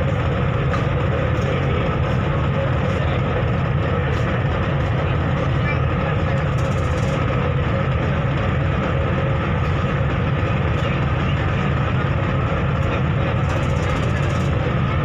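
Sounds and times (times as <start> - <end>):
ferry engine drone: 0.0 - 15.0.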